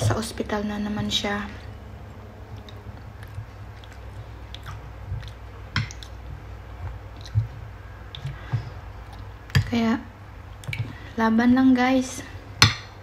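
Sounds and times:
person chewing food: 1.7 - 9.5.

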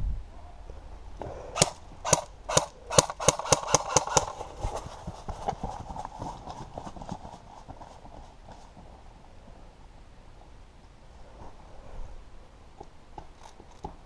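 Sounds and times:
airsoft gun shots: 1.6 - 4.4.

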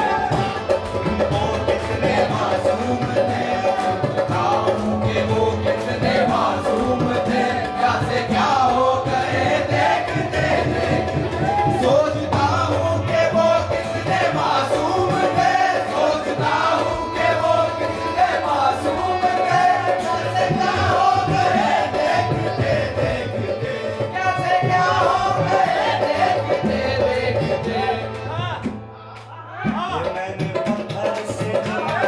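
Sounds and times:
chorus voices: 0.0 - 32.0
man singing: 0.0 - 32.0
harmonium held notes: 12.1 - 28.5.

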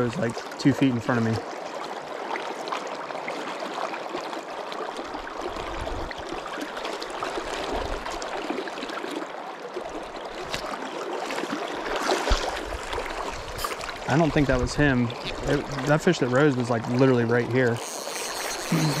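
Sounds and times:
stream rushing: 4.6 - 19.0.

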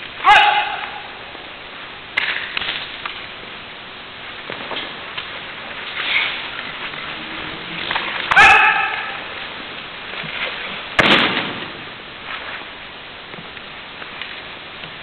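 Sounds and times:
martial arts shout: 0.2 - 1.3, 8.3 - 9.3.

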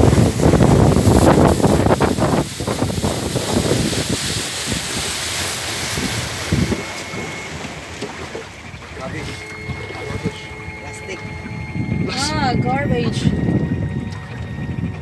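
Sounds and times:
water rushing past boat: 0.0 - 15.0
wind buffeting microphone: 0.0 - 15.0.

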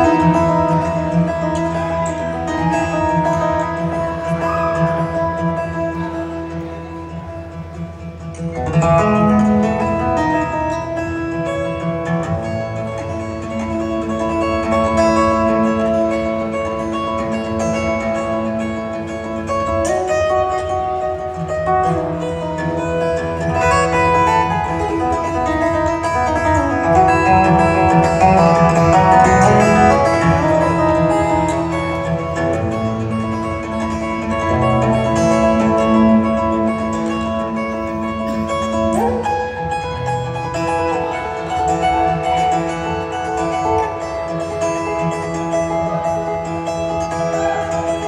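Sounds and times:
twelve-string acoustic guitar: 0.0 - 48.0.

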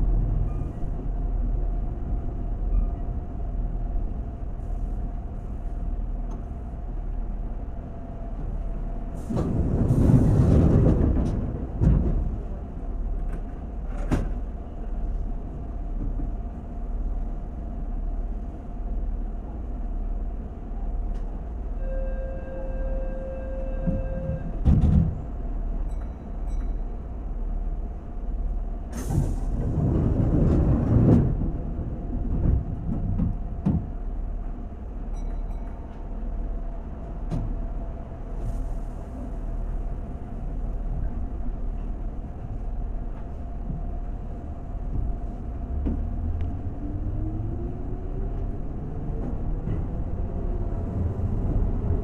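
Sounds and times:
train equipment humming: 0.0 - 52.0
rush of air from doors: 28.9 - 30.1.

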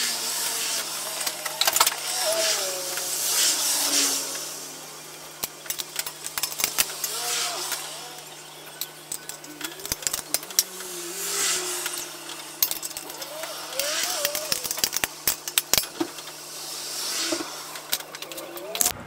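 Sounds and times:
faint steady hum: 0.0 - 19.0
wrench clicking on metal: 8.8 - 16.3
person murmuring: 13.1 - 14.8.

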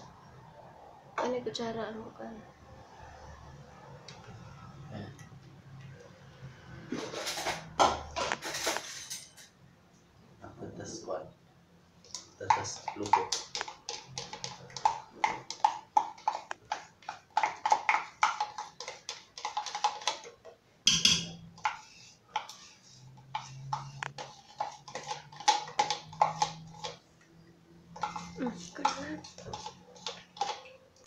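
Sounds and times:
metal spoon scraping inside a can: 6.9 - 7.7, 21.6 - 27.0, 28.0 - 30.7
spoon clattering: 20.9 - 21.8, 23.3 - 27.0.

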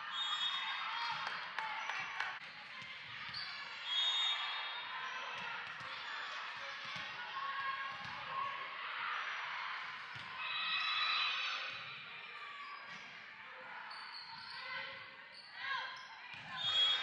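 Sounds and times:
crowd chatter: 0.0 - 14.0.

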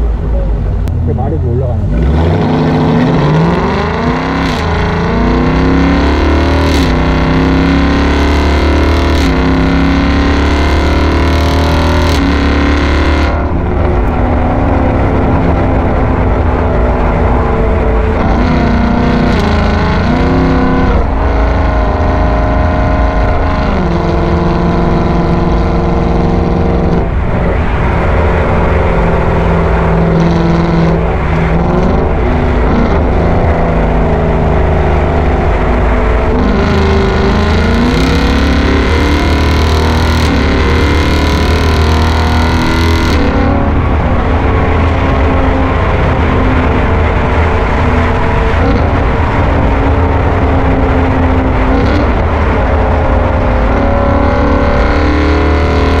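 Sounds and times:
car engine revving while driving: 0.0 - 56.0.

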